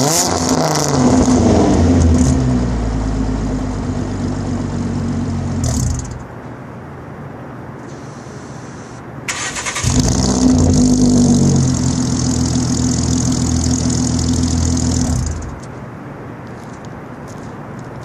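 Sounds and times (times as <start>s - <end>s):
car engine idling: 1.0s - 6.4s, 8.0s - 15.7s
car starter cranking: 9.3s - 10.9s.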